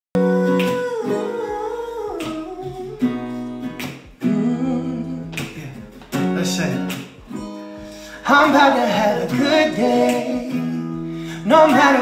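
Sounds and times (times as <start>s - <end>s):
electric guitar strumming chords: 0.2s - 12.0s
woman's wordless singing: 4.2s - 5.4s.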